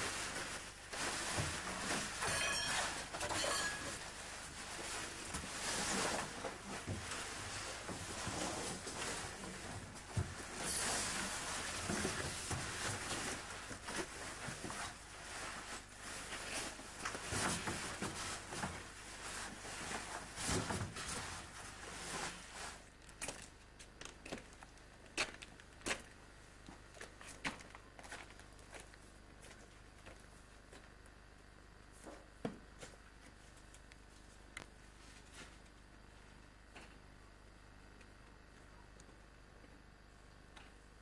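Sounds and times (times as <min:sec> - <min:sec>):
footsteps on stony dirt path: 0:23.2 - 0:26.1, 0:26.7 - 0:30.9.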